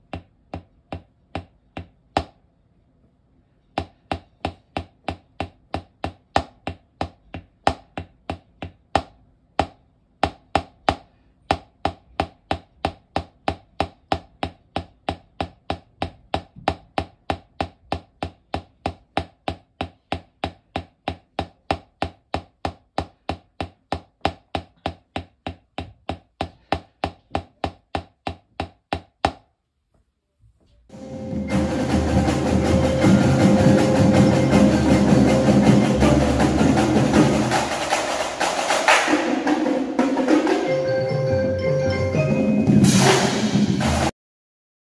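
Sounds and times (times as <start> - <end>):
drumsticks striking practice pad: 3.8 - 29.5
drumline percussion music: 30.9 - 44.1.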